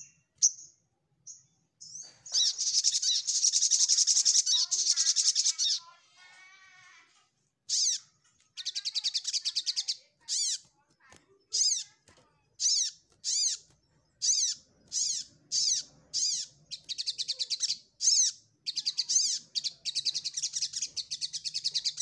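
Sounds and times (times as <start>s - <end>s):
bird warbling: 7.7s - 12.0s, 12.6s - 22.0s
sunbird singing trills: 12.6s - 22.0s.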